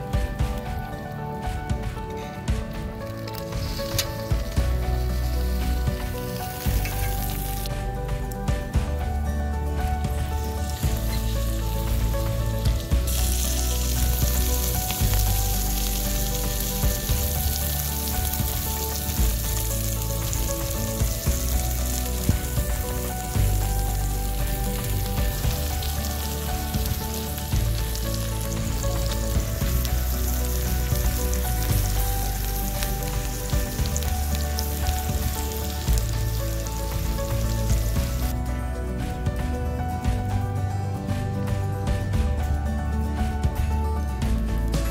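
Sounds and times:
sausages sizzling in oil: 0.0s - 38.4s
background music: 0.0s - 44.9s.

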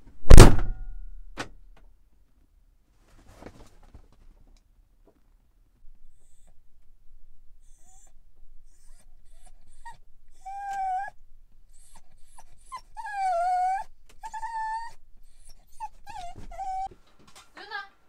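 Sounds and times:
dog whining and whimpering: 6.1s - 6.6s, 7.6s - 16.9s.

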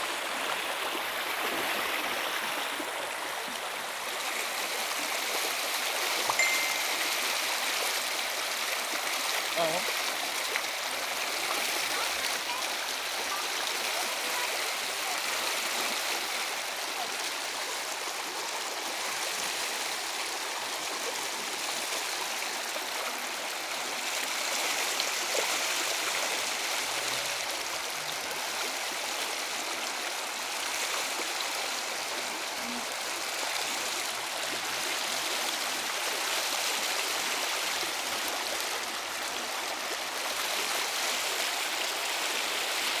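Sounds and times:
floodwater rushing: 0.0s - 43.0s.

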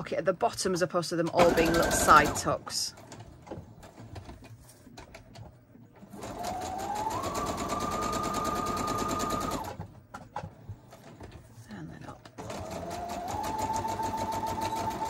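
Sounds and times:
electric sewing machine stitching: 1.4s - 3.2s, 6.0s - 9.9s, 12.4s - 15.0s.

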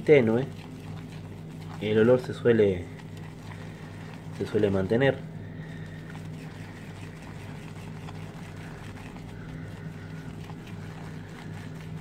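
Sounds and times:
shaving brush swishing lather: 0.0s - 12.0s
steady low hum: 0.0s - 12.0s.

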